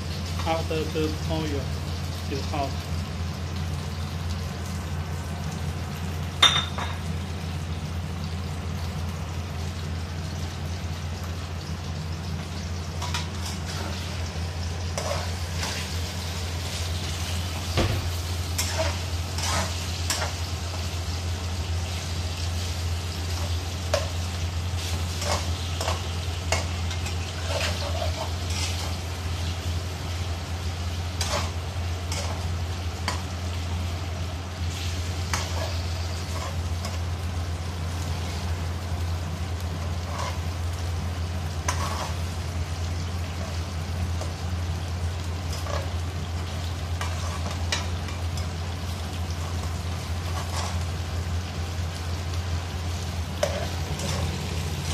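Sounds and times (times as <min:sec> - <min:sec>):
meat sizzling in a wok: 0:00.0 - 0:54.9
metal spatula scraping a pan: 0:14.9 - 0:17.4, 0:18.5 - 0:20.4, 0:24.8 - 0:29.0, 0:31.2 - 0:33.2, 0:34.7 - 0:37.0, 0:39.8 - 0:40.5, 0:41.6 - 0:42.3, 0:45.5 - 0:46.0, 0:47.0 - 0:48.5, 0:50.2 - 0:50.9, 0:53.4 - 0:54.9.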